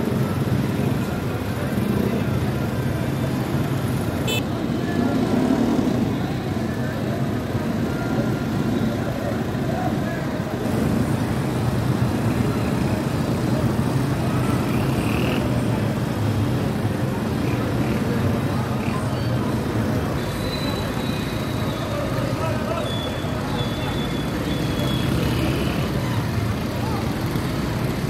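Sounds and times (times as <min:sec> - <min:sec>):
crowd of people talking: 0:00.0 - 0:28.0
street traffic rumble: 0:00.0 - 0:28.0.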